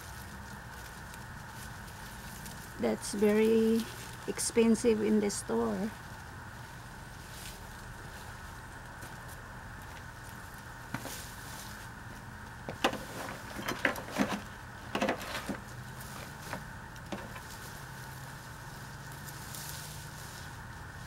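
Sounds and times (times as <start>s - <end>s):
steady low hum: 0.0s - 21.0s
knocks and scrapes handling objects: 10.9s - 11.2s, 12.6s - 17.6s.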